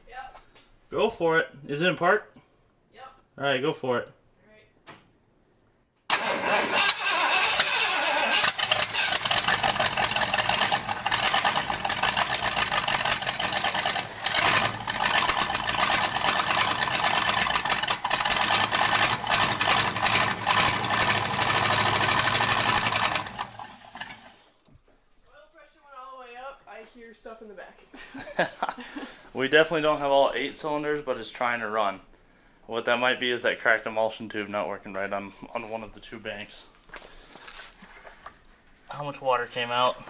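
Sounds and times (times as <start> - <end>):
engine running rough: 6.1 - 24.2.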